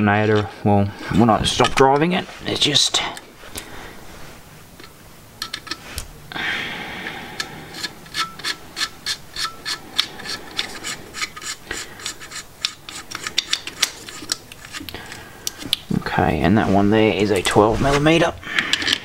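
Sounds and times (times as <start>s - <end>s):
metal scraping: 7.4s - 14.9s.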